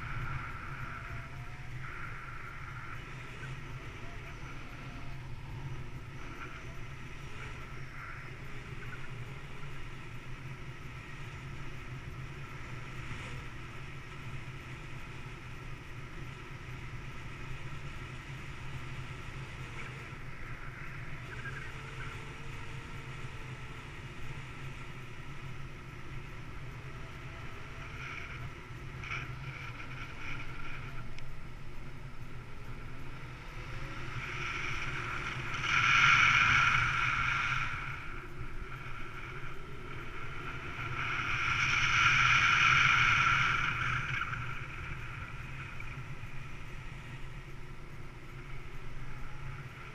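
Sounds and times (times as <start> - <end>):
wind rushing over microphone: 0.0 - 49.9.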